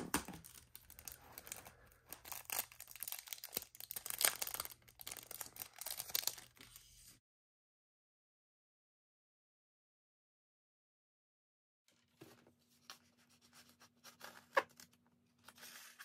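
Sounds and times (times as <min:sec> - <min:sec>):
packaging crinkling and crackling: 0:00.1 - 0:06.7.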